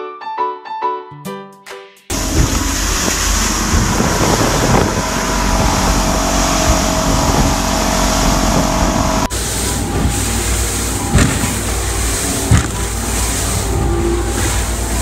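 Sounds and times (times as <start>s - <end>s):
outboard motors running: 2.1s - 15.0s
wind buffeting microphone: 2.1s - 15.0s.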